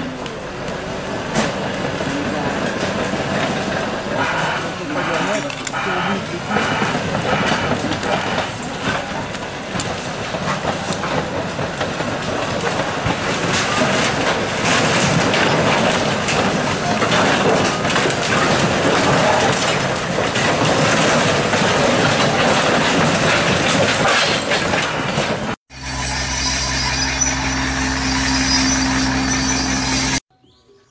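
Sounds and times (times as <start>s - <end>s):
bulldozer engine running: 0.0s - 30.2s
bulldozer tracks clattering: 0.0s - 30.2s
metal sheets and timber crunching: 1.3s - 25.6s.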